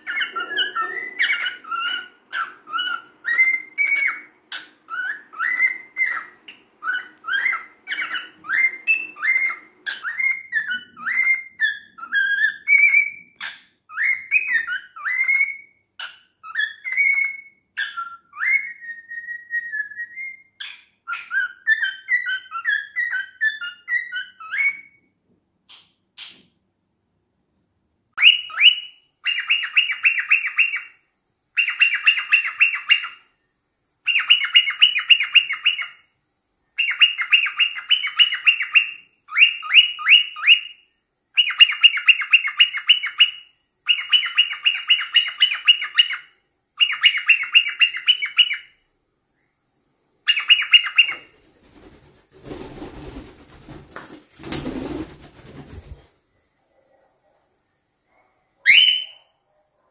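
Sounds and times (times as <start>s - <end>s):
cockatiel chirping: 0.0s - 25.0s, 28.2s - 31.0s, 31.6s - 33.3s, 34.0s - 36.1s, 36.8s - 48.8s, 50.2s - 51.4s, 58.6s - 59.2s.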